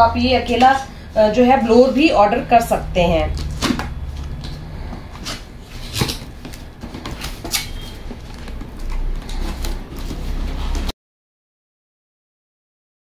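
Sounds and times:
cardboard box rustling: 0:03.5 - 0:10.9.

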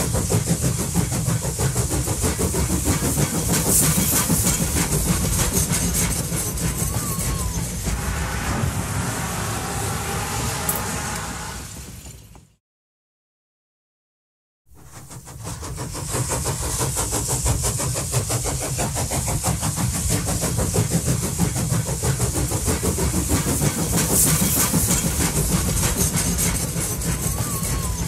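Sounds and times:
toy train rattling on track: 0:00.3 - 0:07.8, 0:21.4 - 0:28.0.

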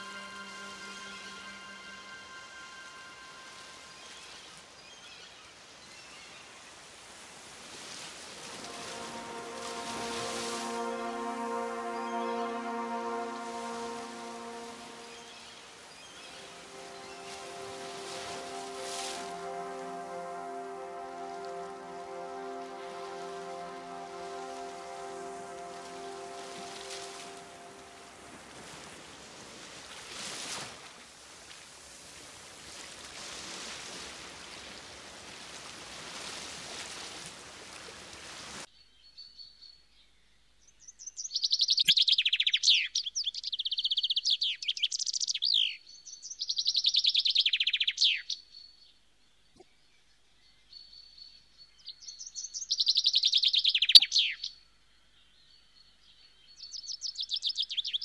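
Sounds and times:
thin steady high tone: 0:00.0 - 0:05.5, 0:08.0 - 0:29.2
sea water rushing: 0:06.8 - 0:31.2.

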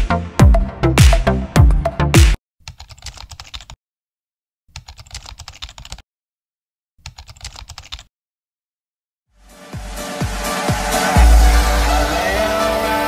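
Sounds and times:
keyboard typing clicks: 0:02.6 - 0:03.8, 0:04.8 - 0:06.0, 0:07.0 - 0:08.1.

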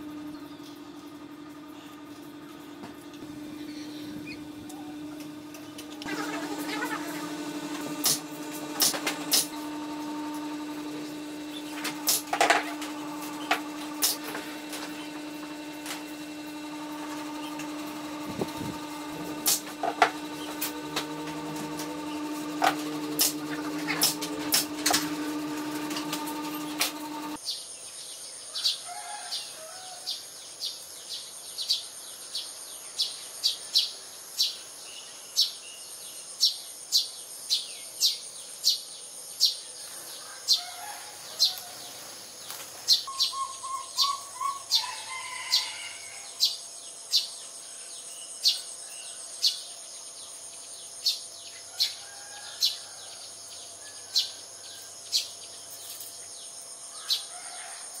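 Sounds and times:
sparrows chirping: 0:41.3 - 0:45.1.

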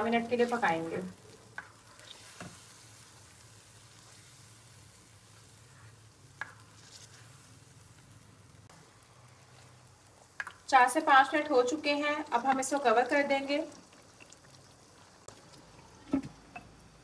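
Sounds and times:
chicken sizzling faintly: 0:00.0 - 0:17.0.

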